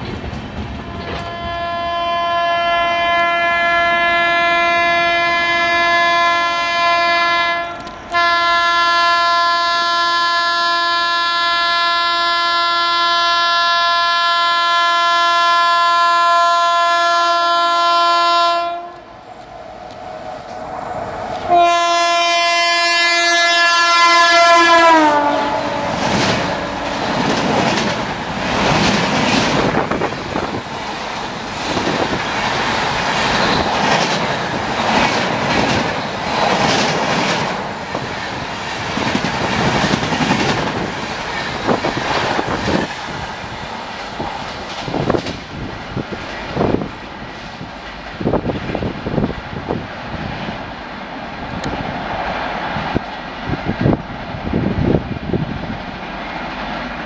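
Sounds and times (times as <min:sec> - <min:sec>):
train rumble and wheel clatter: 0:00.0 - 0:57.0
locomotive horn: 0:00.8 - 0:19.1, 0:21.4 - 0:27.0.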